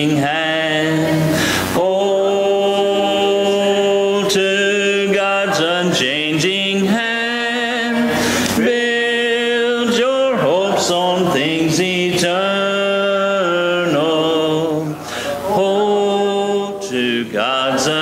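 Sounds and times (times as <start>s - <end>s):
congregation singing a hymn: 0.0s - 18.0s
singers breathing: 1.3s - 1.8s, 8.1s - 8.6s, 15.0s - 15.5s.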